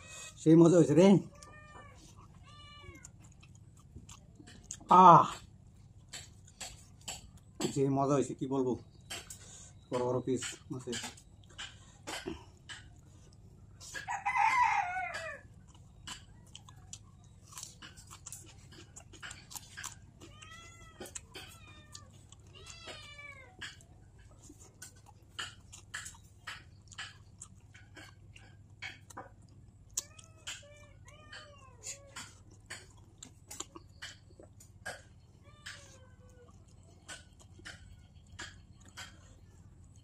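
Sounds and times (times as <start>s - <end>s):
wet chewing and lip-smacking: 0.0s - 40.0s
cat meowing: 1.2s - 3.2s, 20.2s - 23.8s, 30.0s - 32.4s, 35.3s - 36.5s.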